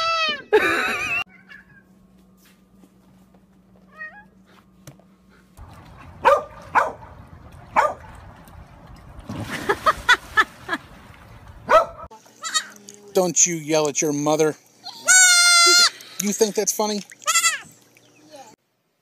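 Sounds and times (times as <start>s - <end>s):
water splashing: 5.6s - 12.1s, 16.0s - 18.2s
dogs barking: 5.9s - 8.2s, 11.6s - 12.1s.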